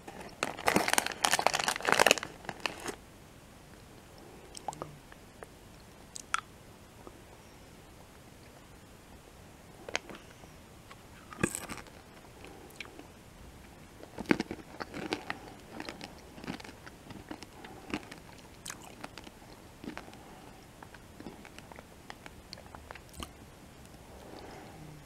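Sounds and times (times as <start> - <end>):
candy crunching: 0.0 - 3.0, 10.9 - 13.0, 14.0 - 23.4.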